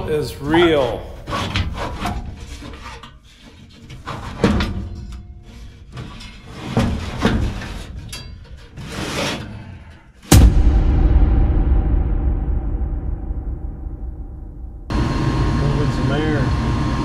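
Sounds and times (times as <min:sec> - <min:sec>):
sheet metal knocks and scrapes: 0:01.2 - 0:10.5.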